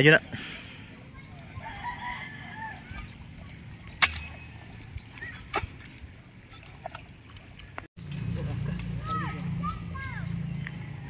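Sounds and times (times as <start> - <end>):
wet mud squelching: 0.5 - 9.6
metal bar knocking in mud: 3.9 - 4.5.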